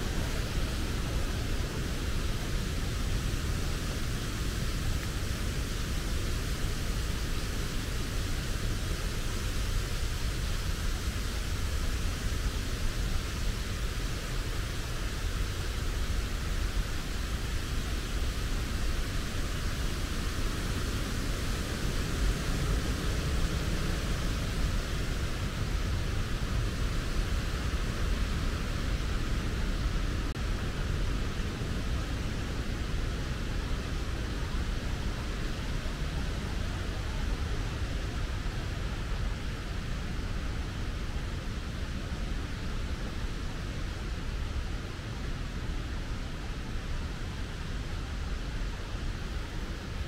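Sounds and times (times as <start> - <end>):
steady rushing noise: 0.0 - 50.0.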